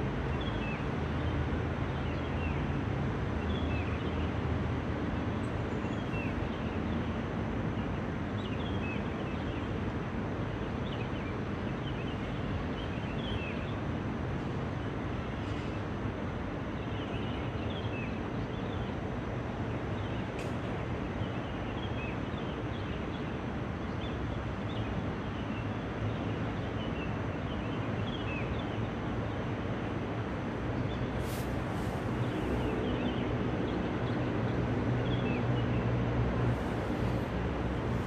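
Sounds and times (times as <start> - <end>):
distant traffic rumble: 28.5 - 38.0.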